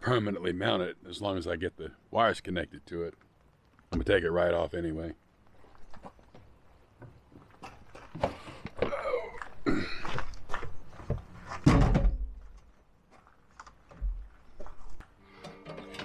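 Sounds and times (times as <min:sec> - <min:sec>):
knocks and clunks in truck bed: 0:11.1 - 0:12.6.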